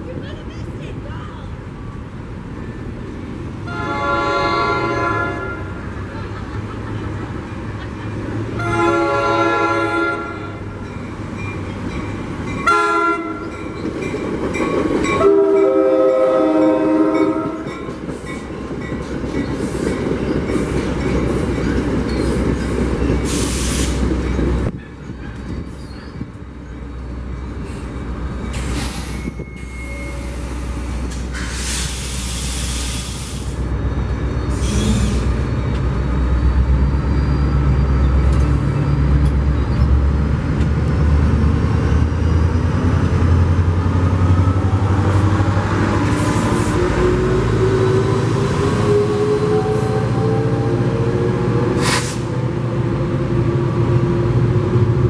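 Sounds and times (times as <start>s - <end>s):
train rumble and wheel clatter: 0.0s - 55.0s
train horn: 3.6s - 5.8s, 8.6s - 10.7s, 12.6s - 13.5s, 15.2s - 17.7s.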